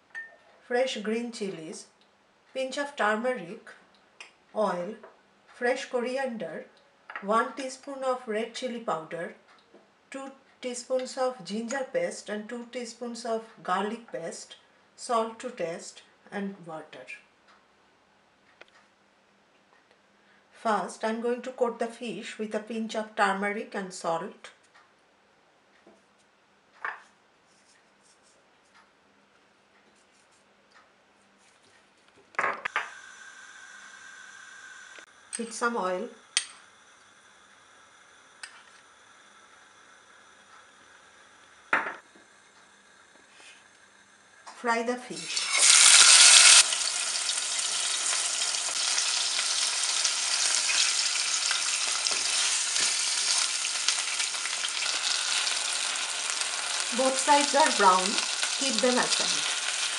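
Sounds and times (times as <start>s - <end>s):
fish sizzling in hot oil: 45.2s - 59.9s.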